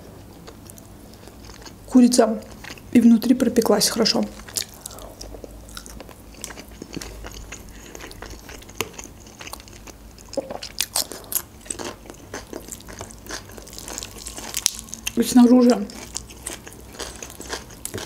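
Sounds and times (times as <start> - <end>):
chewing with wet mouth clicks: 4.4 - 15.2, 15.9 - 18.0
crisp cucumber crunches: 4.4 - 15.2.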